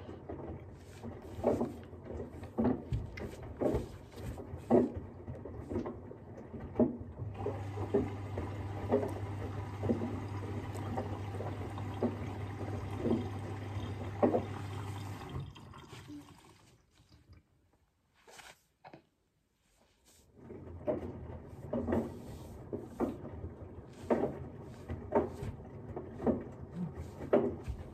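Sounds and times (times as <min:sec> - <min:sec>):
washing machine drum tumbling: 0:00.0 - 0:15.5, 0:20.4 - 0:27.9
water sloshing: 0:00.4 - 0:17.4.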